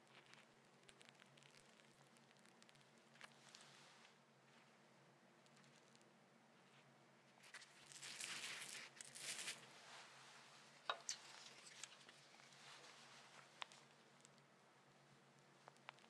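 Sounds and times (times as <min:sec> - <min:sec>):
soft rustling handling: 0:01.5 - 0:04.8, 0:05.4 - 0:14.5.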